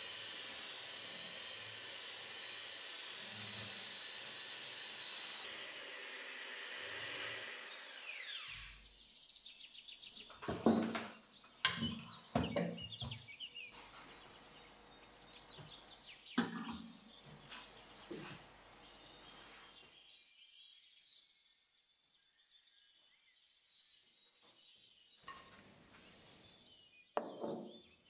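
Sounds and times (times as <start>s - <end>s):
kitchen appliance motor whirring: 0.0s - 8.9s
sharp knocks and clatters: 10.3s - 13.3s.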